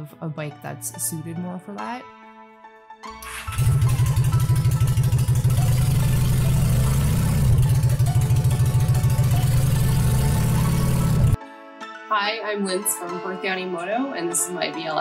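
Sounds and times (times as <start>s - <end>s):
motorcycle engine revving: 3.3s - 11.4s.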